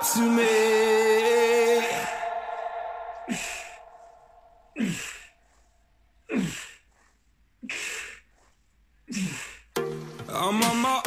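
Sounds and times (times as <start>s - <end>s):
man exhaling forcefully: 3.3s - 5.3s.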